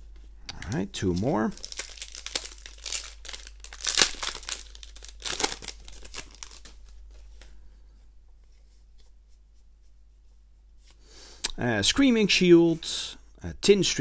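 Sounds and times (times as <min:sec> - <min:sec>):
cards rustling in wrapper: 0:01.0 - 0:07.5
foil wrapper tearing and crinkling: 0:01.5 - 0:06.9.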